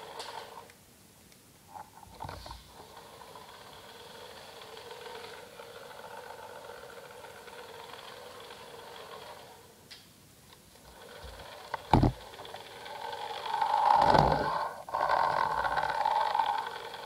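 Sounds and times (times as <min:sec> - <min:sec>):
electric motor whirring: 0:02.5 - 0:09.8, 0:10.8 - 0:17.0.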